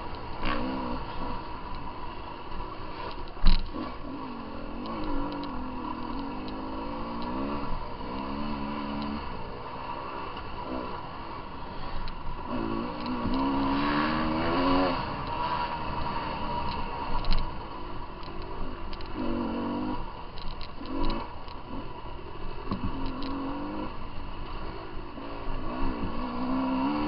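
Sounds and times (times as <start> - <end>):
dirt bike engine revving: 0.0 - 27.0
light clicks and rattles: 2.5 - 3.8, 16.3 - 19.2, 20.3 - 21.6.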